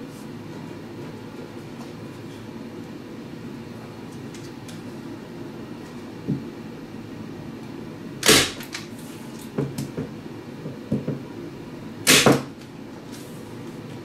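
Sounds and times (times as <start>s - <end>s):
stapler snapping: 12.1s - 12.4s.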